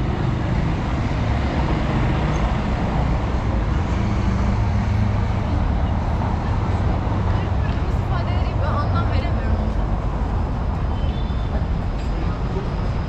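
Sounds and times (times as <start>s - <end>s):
low rumble of street traffic: 0.0s - 13.0s.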